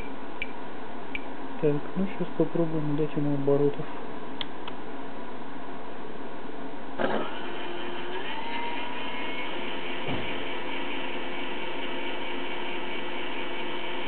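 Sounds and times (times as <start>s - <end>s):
electric motor whine: 7.0s - 14.0s.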